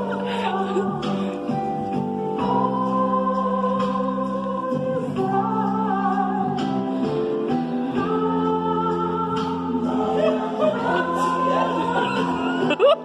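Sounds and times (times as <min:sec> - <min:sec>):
male voices singing in harmony: 0:07.8 - 0:13.0.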